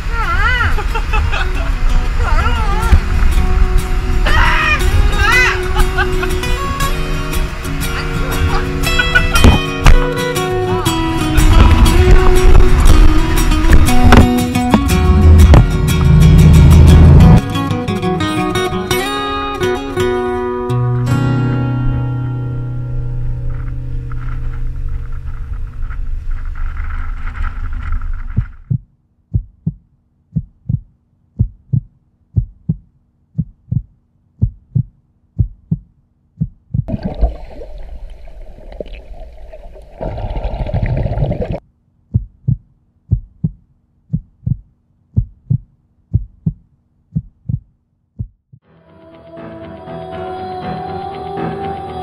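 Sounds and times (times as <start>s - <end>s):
guitar music: 1.7s - 25.8s
heartbeat thumps: 9.4s - 10.1s, 11.4s - 17.4s, 28.2s - 36.9s, 42.1s - 48.6s.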